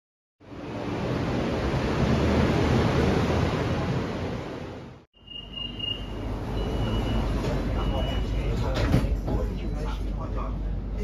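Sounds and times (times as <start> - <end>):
short high beeps: 5.2 - 8.3
train car low rumble: 5.5 - 11.0.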